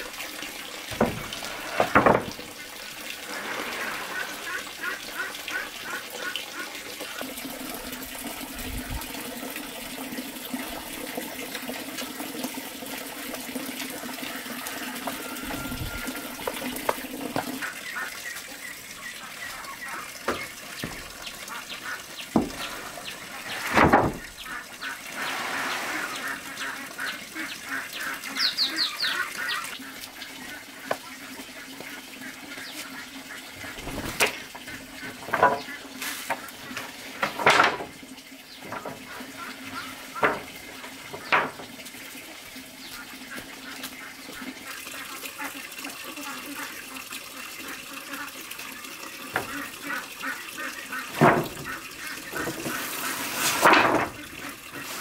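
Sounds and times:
wooden planks knocking and clattering: 0.9 - 2.5, 20.2 - 21.2, 22.3 - 24.4, 33.8 - 38.0, 38.6 - 41.8, 51.1 - 55.0.

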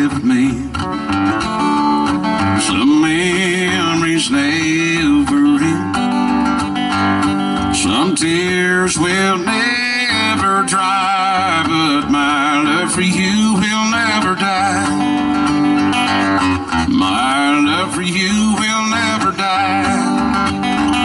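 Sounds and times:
man singing: 0.0 - 1.1, 2.2 - 6.3, 7.6 - 15.8, 16.7 - 21.0
strummed acoustic guitar: 0.0 - 21.0.

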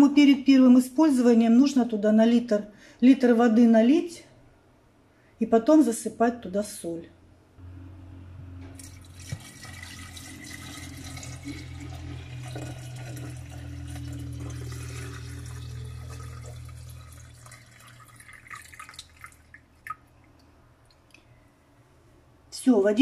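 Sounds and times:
water dripping: 8.7 - 21.2
water pouring from plastic bottle: 8.8 - 20.1.

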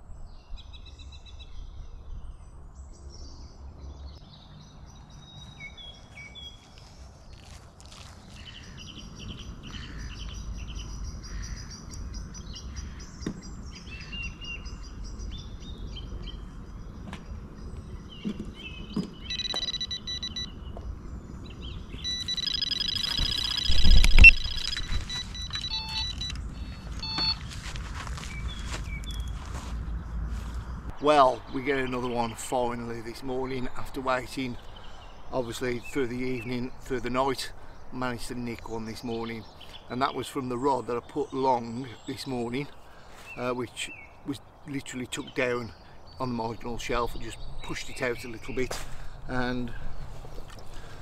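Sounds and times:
birds singing: 0.0 - 51.0
bite alarm beeping: 19.2 - 20.6, 21.9 - 27.4.

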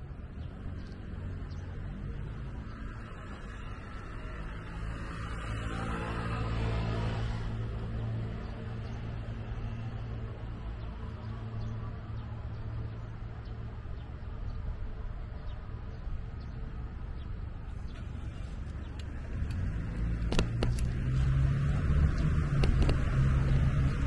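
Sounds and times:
city traffic hum: 0.0 - 24.0
sharp clicks: 19.0 - 21.0, 22.4 - 23.6
wind on microphone: 20.3 - 24.0.

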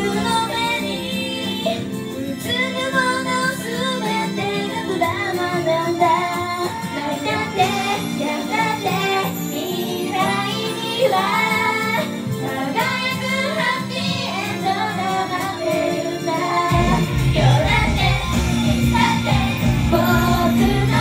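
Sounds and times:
pop backing track: 0.0 - 21.0
women singing: 0.0 - 21.0
deep bass: 16.7 - 21.0.

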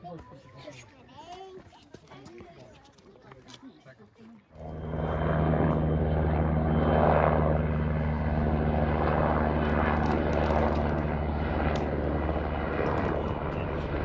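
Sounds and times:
helicopter rotor and engine: 4.4 - 14.0.

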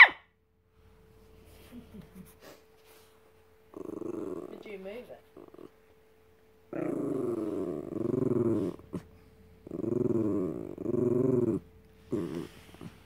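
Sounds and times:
dog growling: 3.7 - 5.8, 6.7 - 13.0.

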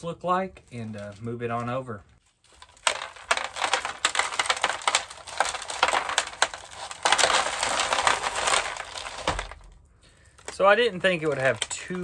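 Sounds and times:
potting mix crunching and rattling: 0.7 - 12.0.

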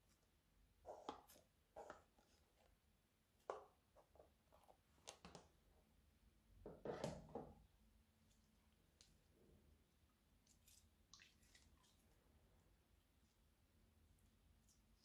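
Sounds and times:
slime squelching by hand: 10.2 - 13.5.

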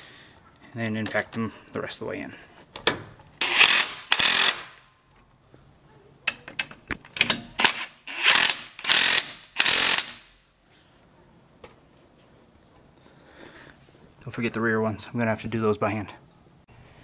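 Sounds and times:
impact wrench hammering: 3.4 - 4.8, 7.2 - 10.3.

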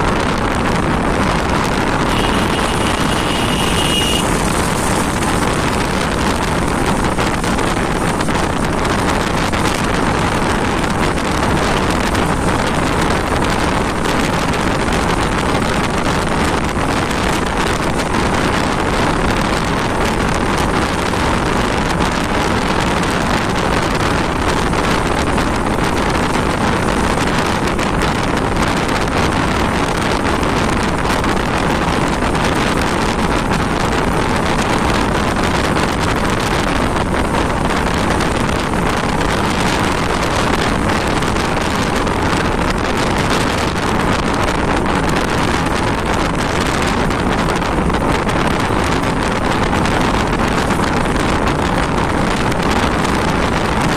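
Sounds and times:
motorcycle engine running: 0.0 - 28.6
road noise: 0.0 - 53.9
wind buffeting microphone: 0.0 - 53.9.

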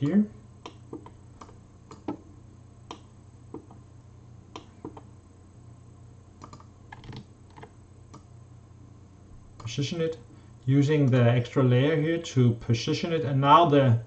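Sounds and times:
faint low hum: 0.0 - 14.0
computer mouse clicks: 0.6 - 2.2, 2.9 - 3.8, 4.5 - 5.1, 6.4 - 8.3
keyboard keys clicking: 6.4 - 8.2.

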